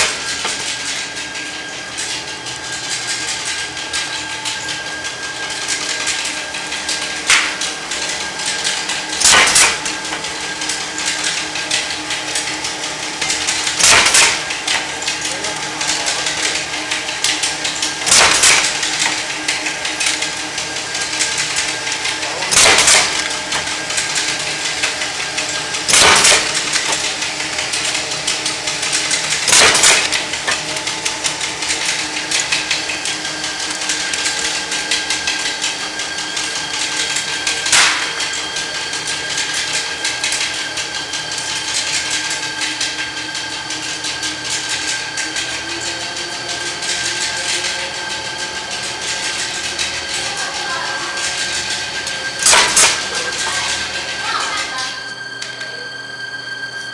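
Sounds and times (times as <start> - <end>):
pneumatic press striking: 0.0 - 1.0, 7.2 - 7.7, 8.6 - 10.3, 13.2 - 14.9, 16.0 - 20.3, 22.4 - 34.6, 36.4 - 38.4, 52.4 - 53.2
roll forming machine running: 0.0 - 56.9.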